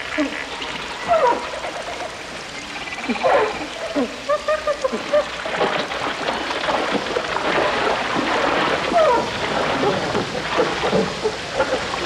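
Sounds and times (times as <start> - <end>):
animal calls: 0.0 - 5.4.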